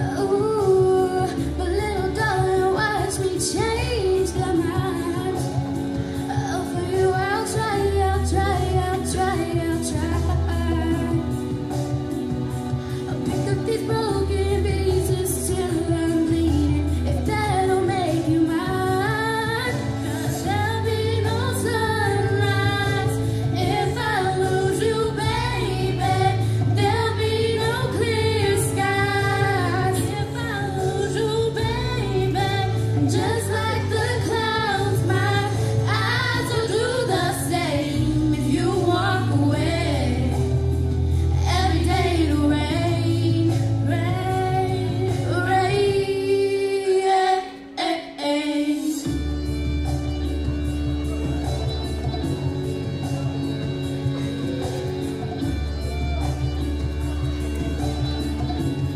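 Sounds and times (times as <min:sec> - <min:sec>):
girls singing a ballad duet: 0:00.0 - 0:12.1, 0:12.9 - 0:49.2
instrumental accompaniment: 0:00.0 - 0:58.9.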